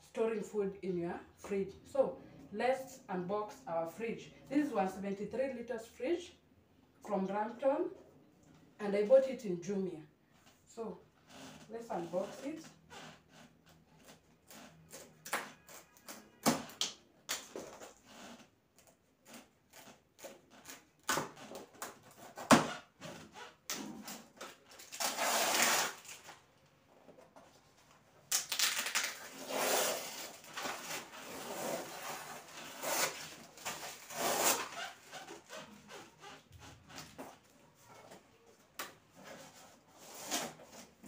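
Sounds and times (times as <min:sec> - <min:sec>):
tearing and rustling cardboard: 0:19.2 - 0:26.4, 0:28.3 - 0:37.4, 0:39.2 - 0:41.0.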